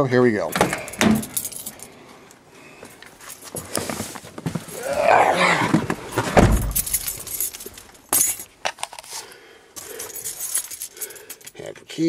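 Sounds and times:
keys jangling: 0:00.5 - 0:01.9, 0:06.4 - 0:09.2, 0:09.8 - 0:11.6.

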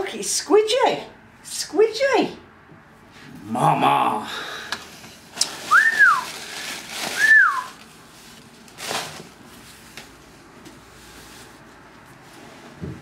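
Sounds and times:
person whistling sliding notes: 0:05.7 - 0:06.3, 0:07.2 - 0:07.7.

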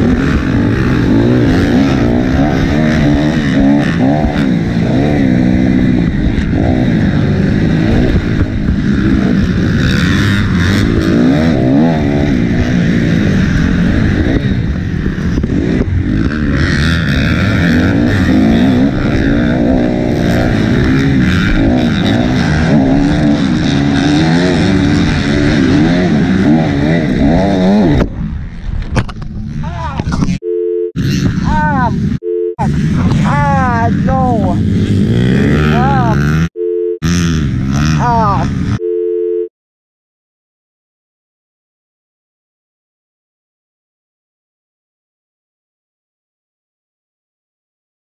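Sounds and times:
motorcycle engine revving: 0:00.0 - 0:30.4, 0:31.0 - 0:38.8.

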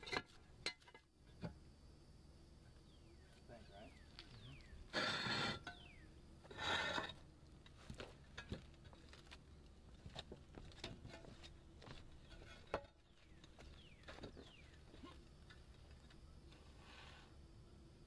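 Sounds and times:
roof tiles scraping: 0:04.9 - 0:09.4.

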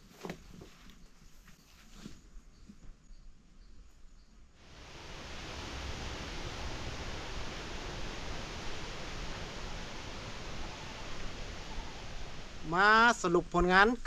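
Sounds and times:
faint outdoor ambience: 0:00.0 - 0:14.0
steady rushing hiss: 0:04.5 - 0:14.0.

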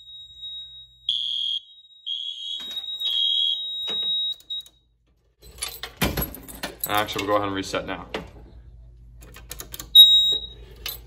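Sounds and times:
fire alarm horn: 0:00.0 - 0:04.8, 0:10.0 - 0:10.6
keys and handling rattle: 0:05.4 - 0:07.2.

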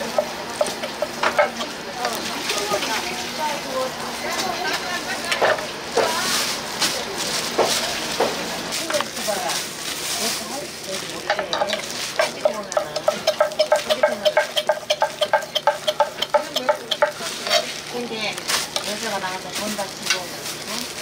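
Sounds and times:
food sizzling: 0:00.0 - 0:21.0
metal spatula tapping on pan: 0:11.3 - 0:17.6.

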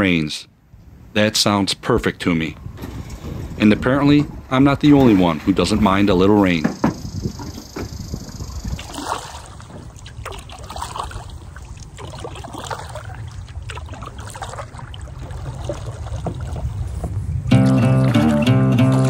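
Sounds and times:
paddle pulling through water: 0:06.8 - 0:17.5
water drips and small splashes: 0:08.2 - 0:17.0.

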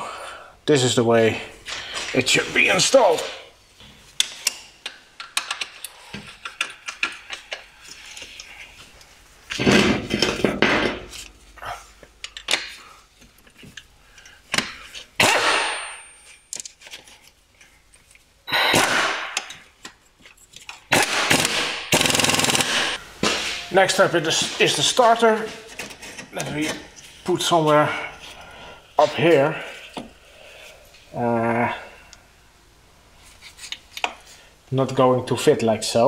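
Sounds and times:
metal clicks and knocks: 0:04.2 - 0:07.7.

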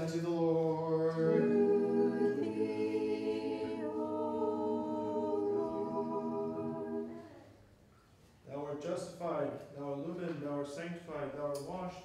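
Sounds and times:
voices singing held chords: 0:00.0 - 0:07.6.

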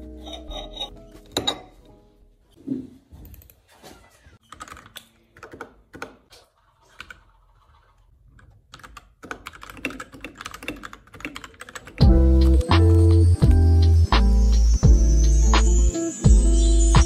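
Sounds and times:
mechanical keyboard typing: 0:04.5 - 0:06.1, 0:08.4 - 0:12.0.

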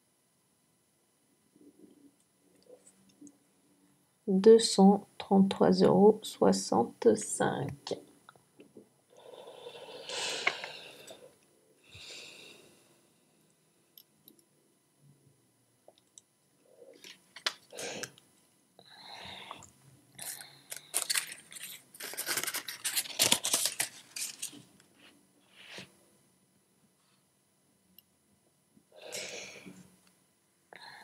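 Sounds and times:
paper crinkling and crackling: 0:20.2 - 0:24.7
paper rustling: 0:20.7 - 0:24.7.

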